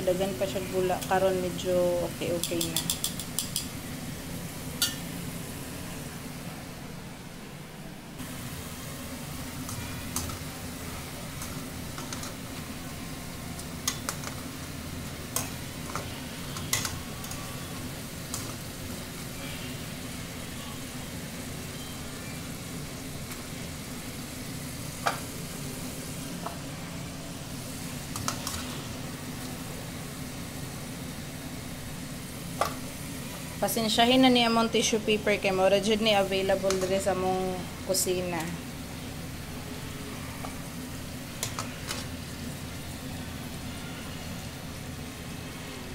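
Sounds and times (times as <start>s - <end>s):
fries sizzling in hot oil: 0.0s - 6.6s, 8.2s - 45.9s
metal utensil clicking on pot: 2.4s - 3.7s.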